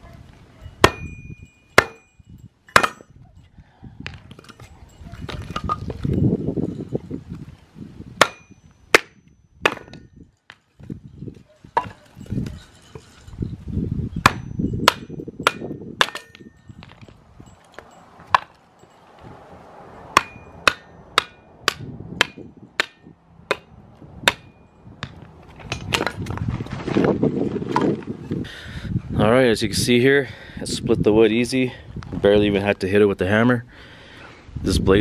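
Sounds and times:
hammer knocking wood on metal blade: 0.8s - 1.2s, 1.8s - 2.1s, 2.7s - 3.1s, 8.2s - 10.1s, 14.2s - 16.5s, 18.2s - 18.6s, 20.1s - 26.2s.

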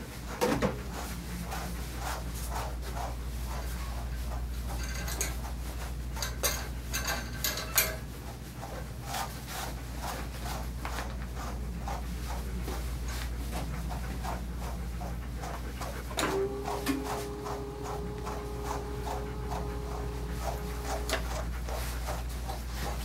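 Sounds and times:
brush stroking through dog fur: 8.2s - 23.0s
steady low hum: 9.9s - 23.0s.

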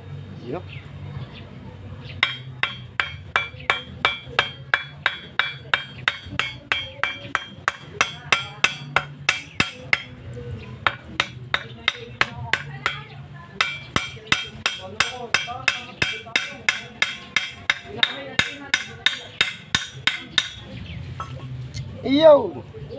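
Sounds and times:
hammer striking metal pipe: 2.2s - 10.2s, 10.9s - 20.6s.

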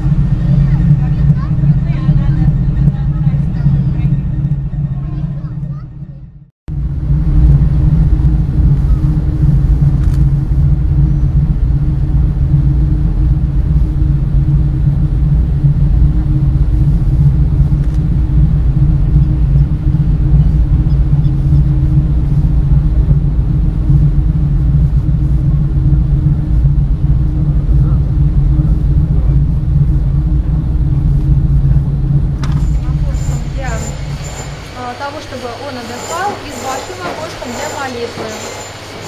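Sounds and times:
ship engines rumbling: 0.0s - 39.0s.

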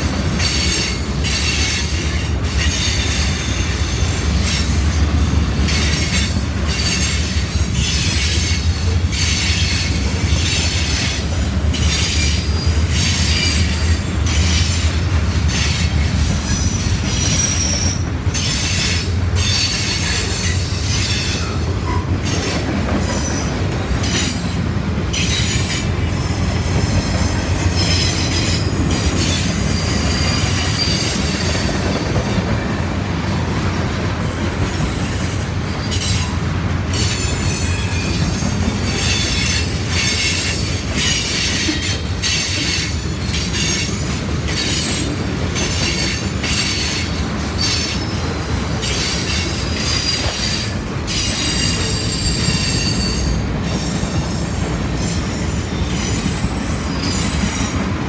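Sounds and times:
train wheels rumbling on rail: 0.0s - 58.0s
high-pitched wheel squeal: 48.8s - 57.8s.

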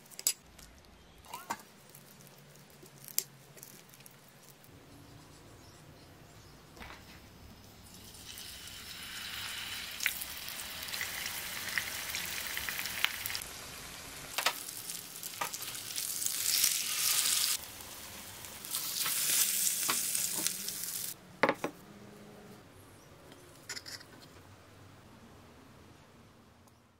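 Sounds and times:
fish sizzling in hot oil: 7.9s - 21.2s.

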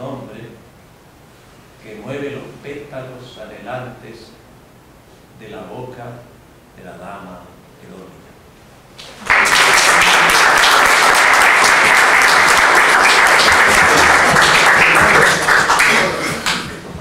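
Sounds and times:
audience applauding: 9.0s - 17.0s.

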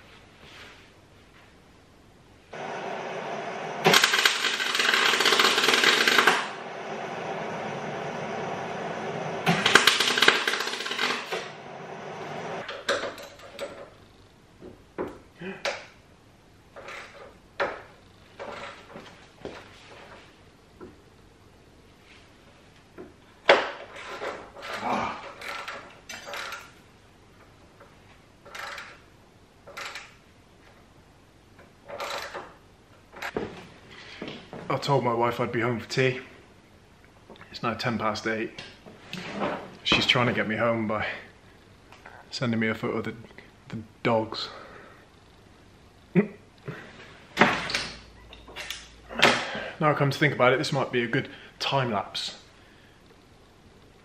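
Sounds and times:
steady hum: 0.0s - 54.0s.

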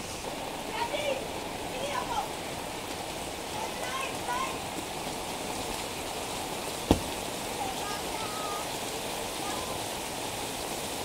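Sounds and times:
steady rain on pavement and roofs: 0.0s - 11.0s
sharp thump: 6.9s - 7.2s.

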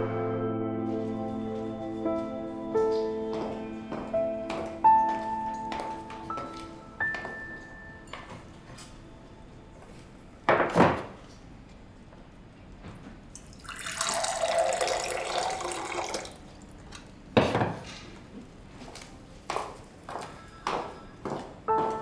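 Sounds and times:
liquid pouring into a mug: 13.3s - 16.5s.

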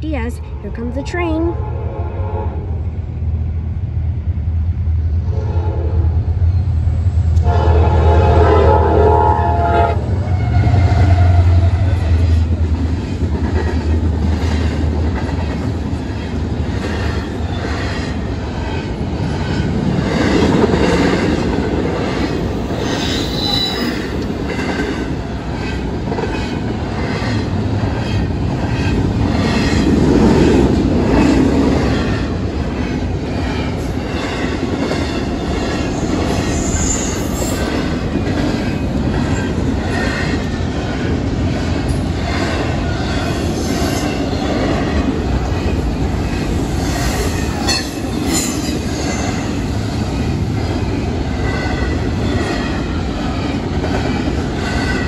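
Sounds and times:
diesel locomotives rumbling: 0.0s - 55.0s
train horn blowing: 1.5s - 2.8s, 5.3s - 6.3s, 7.4s - 11.9s
train wheels clickety-clack: 10.8s - 55.0s.

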